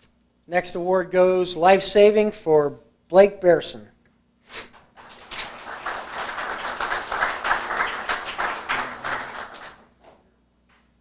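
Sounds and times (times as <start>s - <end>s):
audience applauding: 4.8s - 10.0s.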